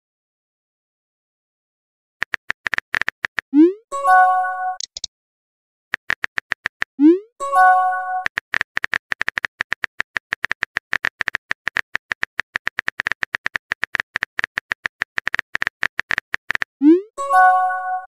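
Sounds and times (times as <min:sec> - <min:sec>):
phone keyboard tapping clicks: 0:02.2 - 0:03.5, 0:04.8 - 0:05.1, 0:06.0 - 0:06.9, 0:08.2 - 0:16.8.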